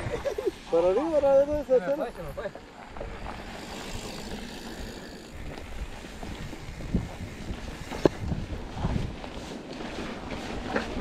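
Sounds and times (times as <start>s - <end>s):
bike tyres on dirt: 0.0s - 11.0s
wind on microphone: 3.0s - 9.5s.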